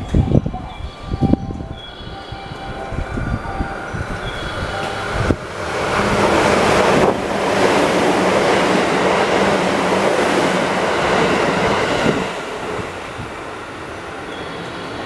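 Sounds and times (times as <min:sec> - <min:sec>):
train rushing past: 0:00.0 - 0:15.0.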